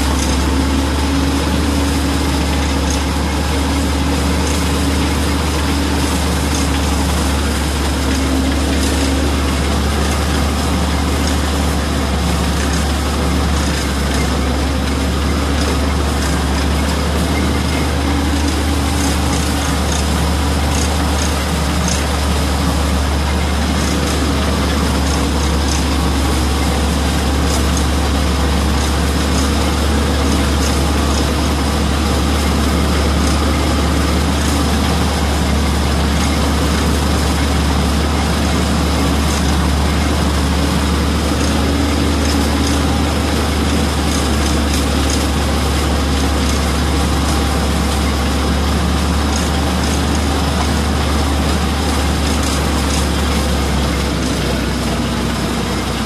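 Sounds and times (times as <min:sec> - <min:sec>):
shredder chopping stalks: 0:00.0 - 0:56.0
tractor engine hum: 0:00.0 - 0:56.0.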